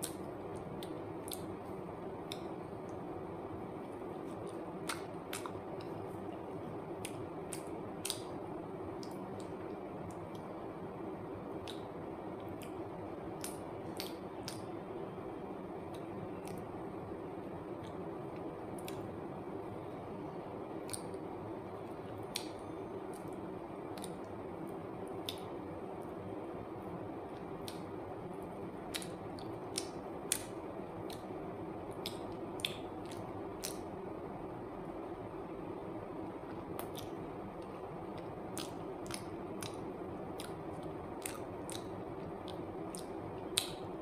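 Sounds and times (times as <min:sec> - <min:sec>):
person chewing with wet mouth sounds: 0:00.0 - 0:03.0, 0:03.8 - 0:10.5, 0:11.5 - 0:14.8, 0:15.8 - 0:16.8, 0:17.8 - 0:19.1, 0:20.2 - 0:21.2, 0:21.8 - 0:26.1, 0:27.3 - 0:34.0, 0:36.5 - 0:44.0
steady background hiss: 0:00.0 - 0:44.0.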